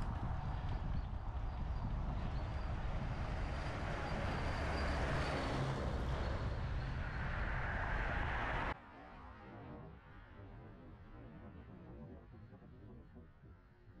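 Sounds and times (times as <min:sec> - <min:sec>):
road noise: 0:00.0 - 0:08.8
wind rushing over microphone: 0:00.0 - 0:08.8.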